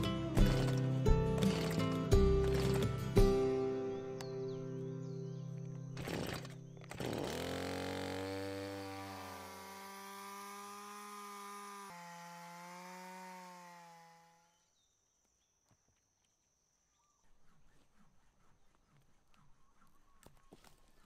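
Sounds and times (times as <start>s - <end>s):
chainsaw cutting a log: 0.0s - 3.2s, 6.0s - 14.7s.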